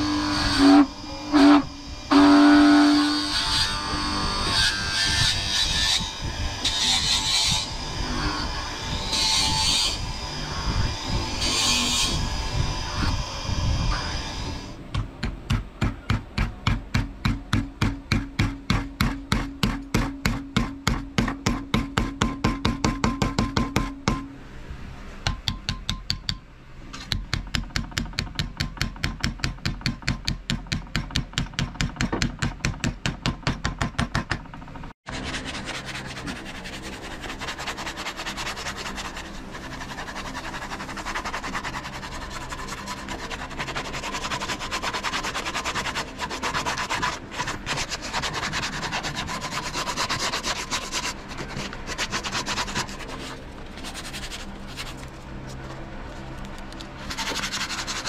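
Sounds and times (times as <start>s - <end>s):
sandpaper rubbing on wood: 35.1s - 55.1s, 57.1s - 58.0s.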